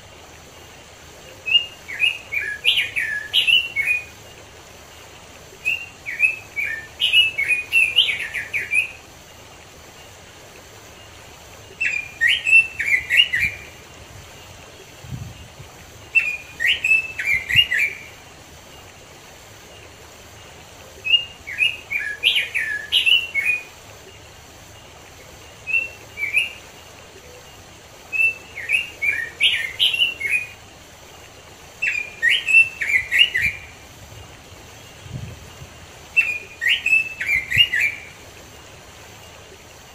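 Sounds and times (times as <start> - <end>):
bird singing warbled phrases: 1.3 - 4.2, 5.6 - 9.0, 11.7 - 13.8, 16.1 - 18.2, 21.0 - 23.8, 28.1 - 30.6, 31.8 - 33.8, 36.1 - 38.2.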